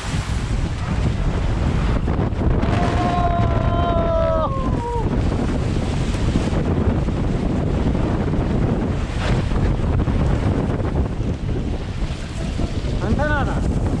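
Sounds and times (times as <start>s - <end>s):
rushing water: 0.0s - 14.0s
wind buffeting microphone: 0.0s - 14.0s.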